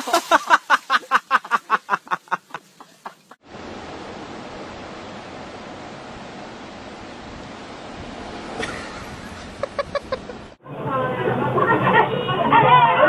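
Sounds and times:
rapid rhythmic laughter: 0.0 - 3.4
wind on microphone: 3.6 - 10.6.

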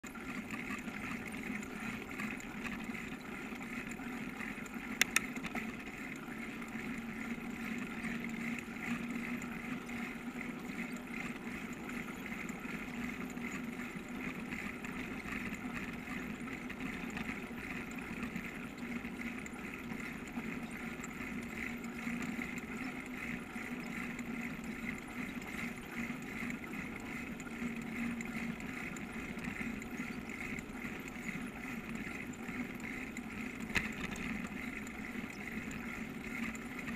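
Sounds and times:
sharp clicks: 5.0 - 5.5.

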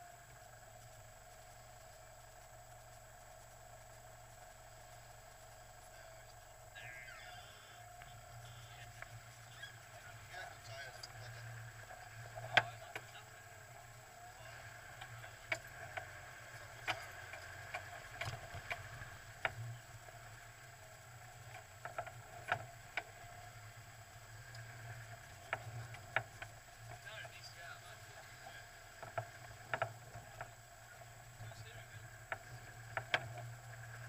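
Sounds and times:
engine running at low revs: 0.0 - 34.0
sharp clicks and knocks: 15.0 - 19.6.

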